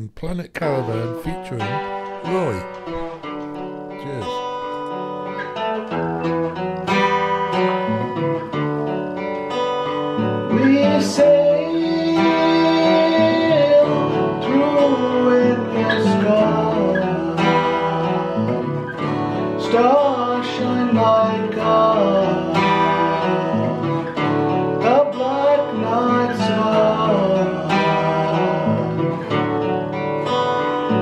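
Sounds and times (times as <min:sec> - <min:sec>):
man singing: 0:00.0 - 0:03.2, 0:03.9 - 0:04.5, 0:10.4 - 0:29.4
acoustic guitar strumming: 0:00.0 - 0:31.0.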